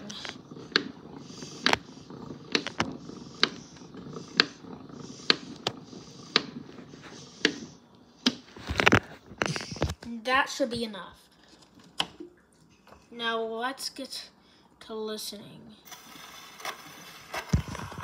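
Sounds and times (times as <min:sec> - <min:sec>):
gramophone crank ratcheting whirr: 0:00.0 - 0:08.5.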